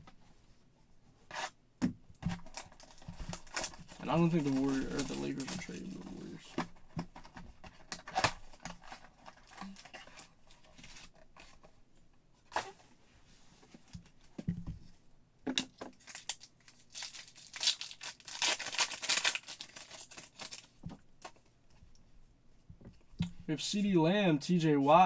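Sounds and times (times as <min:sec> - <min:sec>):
foil pack tearing and crinkling: 0:02.4 - 0:06.2, 0:16.0 - 0:20.8.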